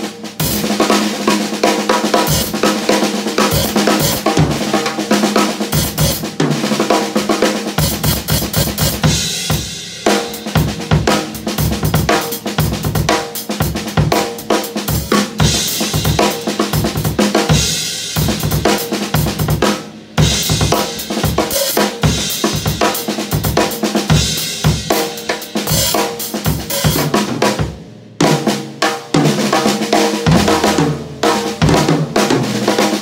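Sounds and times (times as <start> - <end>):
snare drum: 0.0 - 33.0
hi-hat cymbals: 1.9 - 6.4, 7.6 - 27.2
bass drum: 3.4 - 4.9, 7.8 - 14.2.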